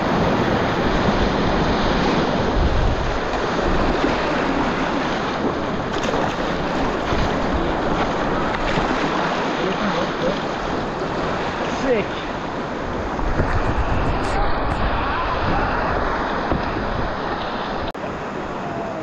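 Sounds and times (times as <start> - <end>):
whitewater rushing: 0.0 - 19.0
paddle knocks and splashes: 0.2 - 11.8, 16.0 - 17.6.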